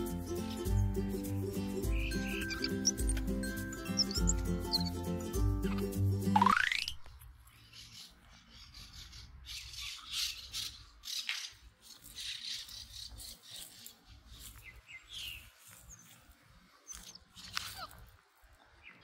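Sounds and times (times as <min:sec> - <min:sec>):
short bird chirps: 0:01.9 - 0:05.0
footsteps through dry leaves: 0:11.8 - 0:18.2.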